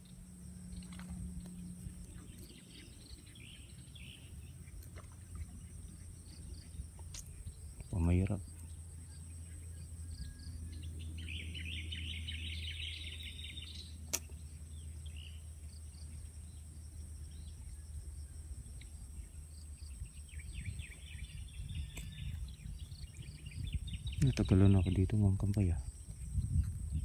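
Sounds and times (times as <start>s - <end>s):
birds chattering: 0.0s - 17.9s, 18.7s - 27.0s
low steady rumble: 0.0s - 27.0s
sharp click: 14.1s - 14.4s.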